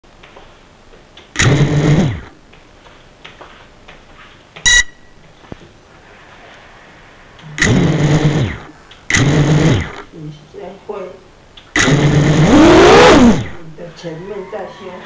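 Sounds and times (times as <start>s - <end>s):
quadcopter motors whirring: 1.4s - 2.3s, 7.4s - 10.1s, 11.8s - 13.6s
short electronic beep: 4.7s - 5.2s.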